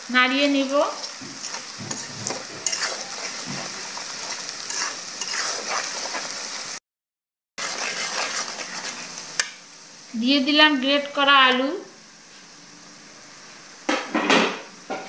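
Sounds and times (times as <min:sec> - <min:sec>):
onions and spices sizzling in oil: 0:00.0 - 0:06.8, 0:07.6 - 0:15.0
metal spatula scraping a pan: 0:00.9 - 0:06.4, 0:07.6 - 0:09.5.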